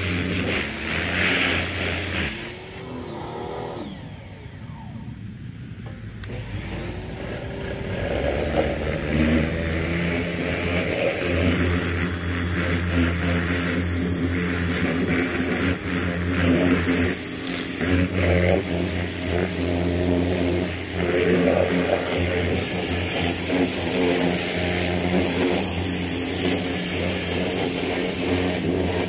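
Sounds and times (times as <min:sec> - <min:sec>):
water jet hissing: 0:00.0 - 0:03.0
pressure washer motor droning: 0:00.0 - 0:29.0.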